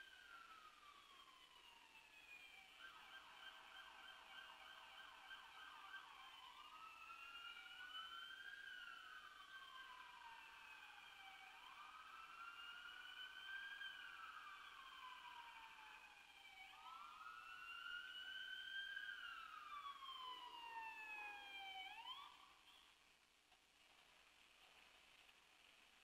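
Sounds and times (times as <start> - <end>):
faint siren wailing and yelping: 0.0 - 22.9.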